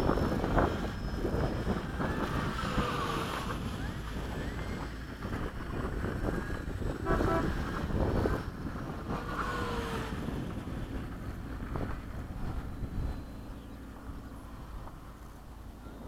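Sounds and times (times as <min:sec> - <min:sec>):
electric jet whine: 0:00.0 - 0:05.7
wind buffeting microphone: 0:00.0 - 0:16.0.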